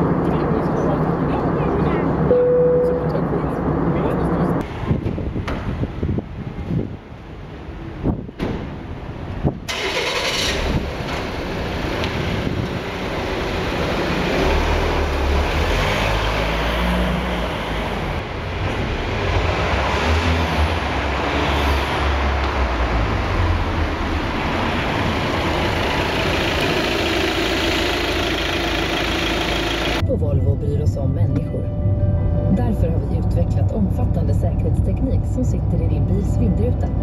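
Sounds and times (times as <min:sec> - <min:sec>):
car engine starting and running: 0:08.0 - 0:37.0.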